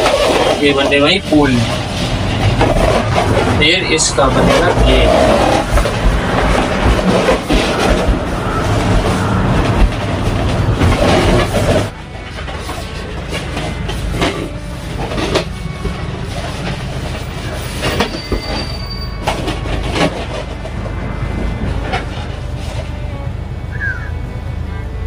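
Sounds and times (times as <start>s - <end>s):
balloons squeaking and rubbing: 0.0s - 12.0s.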